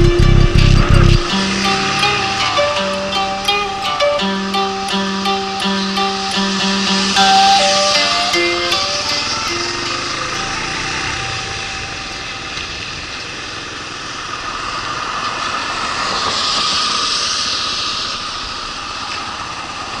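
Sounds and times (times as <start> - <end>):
motorcycle engine running: 0.0 - 2.8, 8.7 - 15.2
guitar tune: 0.0 - 13.3
road and wind noise: 0.0 - 20.0.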